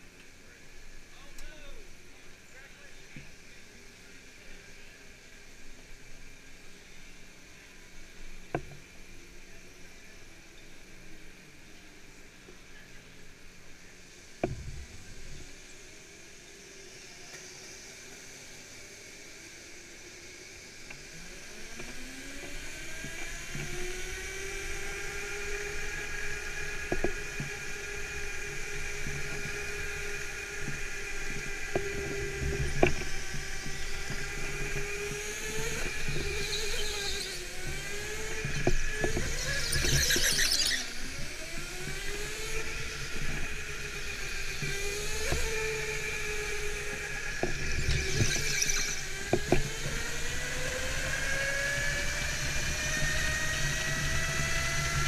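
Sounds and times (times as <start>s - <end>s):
go-kart motor whining: 14.4s - 55.0s
tyres squealing: 39.3s - 40.9s.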